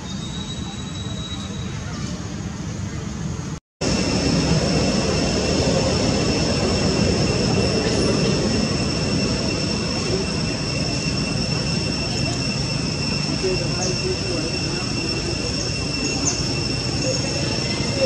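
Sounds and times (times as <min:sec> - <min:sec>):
cicadas droning: 0:03.8 - 0:18.0.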